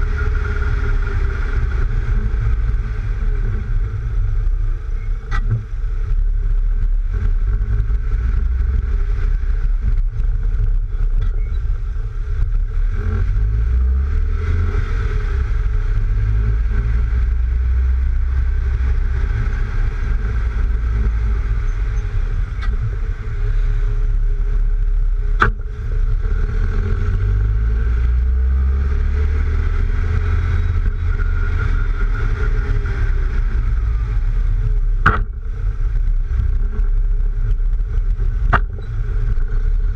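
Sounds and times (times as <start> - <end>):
car engine running: 0.0 - 39.9
road noise: 0.0 - 39.9
wind noise: 0.0 - 39.9
sharp knock: 35.0 - 35.4.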